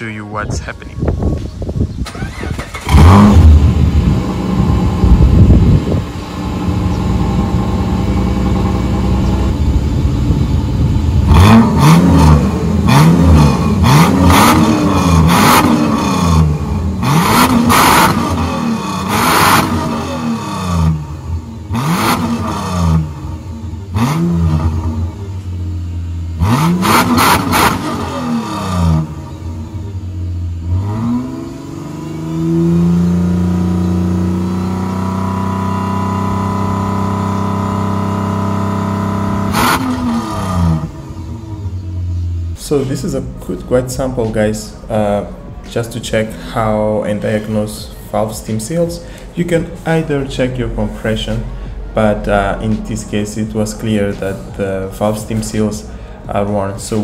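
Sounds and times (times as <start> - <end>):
car engine starting and idling: 0.0 - 57.0
engine revving: 2.0 - 44.0.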